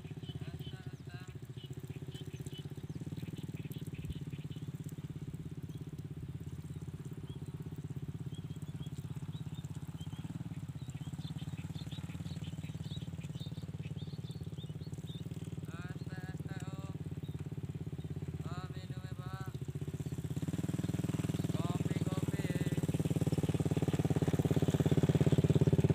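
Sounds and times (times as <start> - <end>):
birds chirping: 0.0 - 25.9
small engine running: 0.0 - 25.9.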